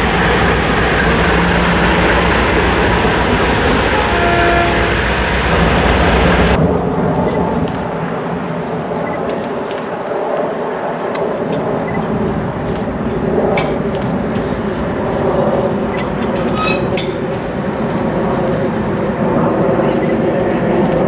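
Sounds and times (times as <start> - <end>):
diesel locomotive engines droning: 0.0 - 21.0
metallic clinks from train: 13.4 - 18.8.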